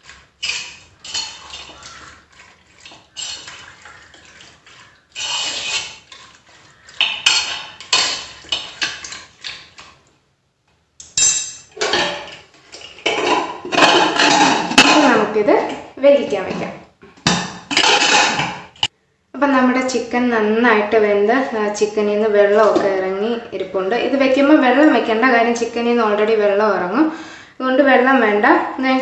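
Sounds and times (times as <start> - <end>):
wet scraping in metal pot: 0.0 - 10.0, 11.2 - 18.9.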